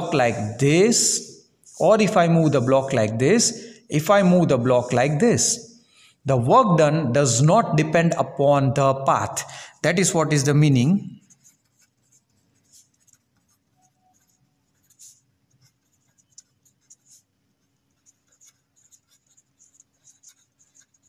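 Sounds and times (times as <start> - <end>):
pen scratching on paper: 0.0 - 5.7, 11.2 - 21.0.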